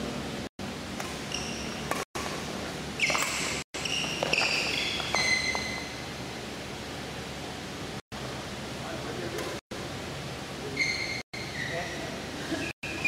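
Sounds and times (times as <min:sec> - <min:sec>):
shoes squeaking on court floor: 0:01.0 - 0:06.2, 0:10.7 - 0:13.0.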